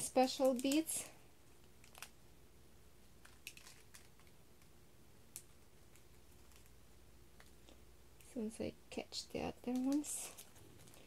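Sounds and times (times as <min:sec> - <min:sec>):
plastic bag crinkling: 0:00.0 - 0:01.1, 0:01.7 - 0:02.2, 0:03.2 - 0:04.4, 0:09.6 - 0:11.0.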